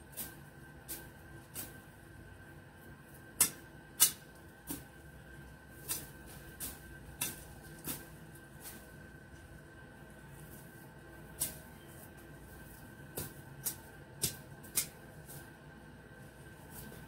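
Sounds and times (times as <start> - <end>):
sharp clicks of snipping: 3.4 - 4.2, 13.2 - 15.0.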